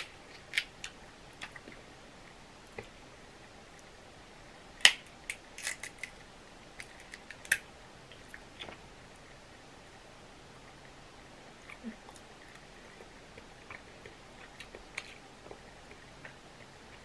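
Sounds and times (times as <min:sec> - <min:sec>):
crab shells cracking: 0:00.0 - 0:01.7, 0:04.8 - 0:06.2, 0:06.8 - 0:07.7.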